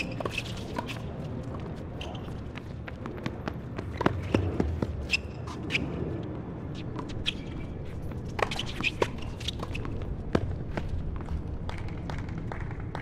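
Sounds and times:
sneaker squeaks: 0.0s - 1.2s, 1.9s - 2.6s, 3.8s - 6.0s, 6.7s - 10.0s.

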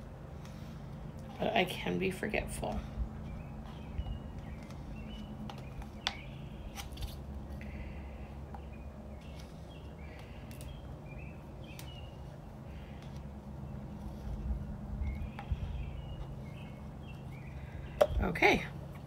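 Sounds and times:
steady low hum: 0.0s - 19.0s
small birds chirping: 0.4s - 19.0s.

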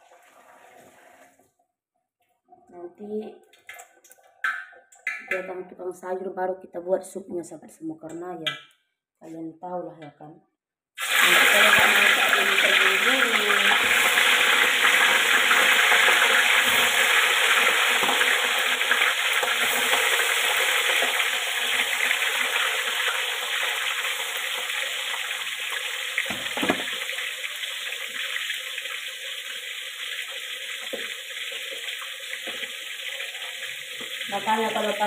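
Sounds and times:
fish frying in hot oil: 11.0s - 35.0s.

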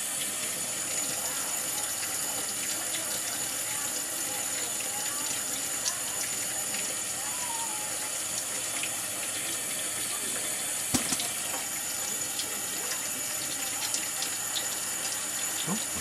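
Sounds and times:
tap running into a steel sink: 10.9s - 11.8s.

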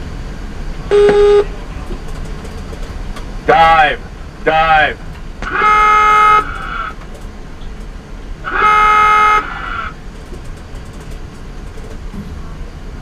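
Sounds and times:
submarine dive alarm blasts: 0.9s - 1.5s, 5.4s - 6.9s, 8.4s - 9.9s.

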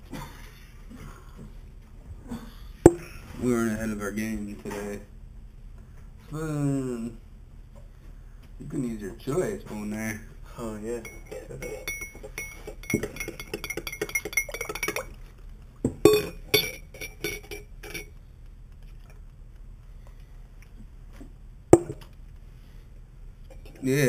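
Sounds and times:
metal spoon clinking in ceramic mug: 11.0s - 15.1s, 16.1s - 18.1s, 21.8s - 22.0s
sharp knock: 21.8s - 22.0s.

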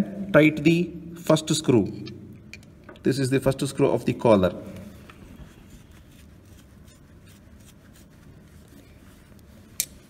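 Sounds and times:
screwdriver clicks and scrapes: 9.7s - 10.0s.

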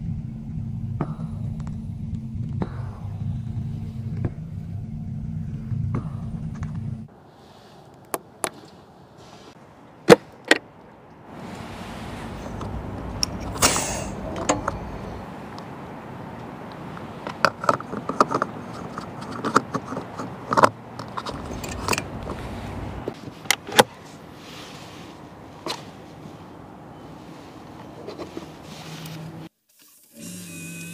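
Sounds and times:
outdoor background noise: 0.0s - 30.9s
brief hiss: 13.6s - 14.2s
fuel cap clicking: 16.7s - 22.4s.

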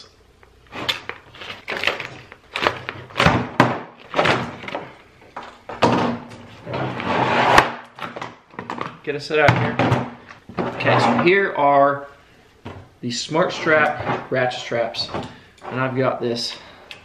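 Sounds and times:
paper rustling: 0.7s - 3.2s.

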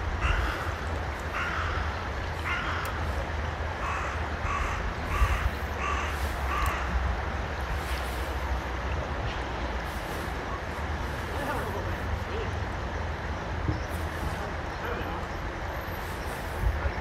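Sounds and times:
bird cawing: 0.2s - 3.2s, 3.8s - 7.0s
wind rumble on microphone: 4.4s - 11.1s, 16.2s - 17.0s.

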